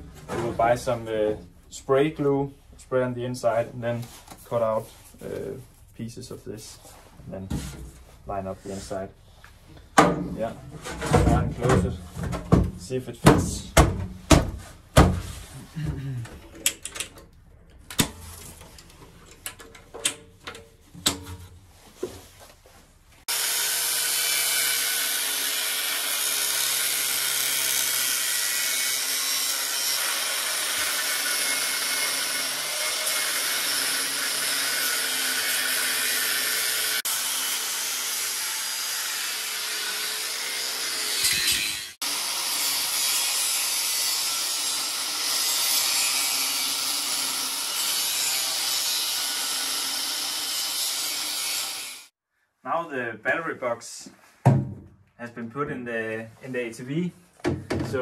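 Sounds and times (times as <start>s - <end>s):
angle grinder cutting steel: 23.3s - 52.1s.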